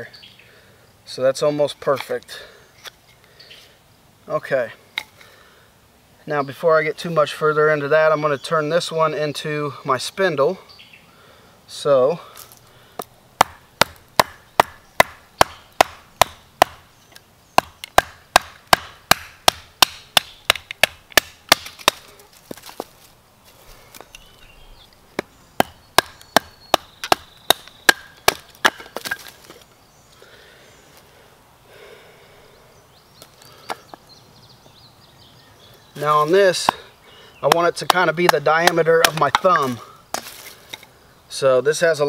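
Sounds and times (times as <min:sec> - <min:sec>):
axe chopping wood: 0:13.0 - 0:16.8, 0:17.6 - 0:22.8, 0:25.2 - 0:29.4, 0:36.6 - 0:40.4.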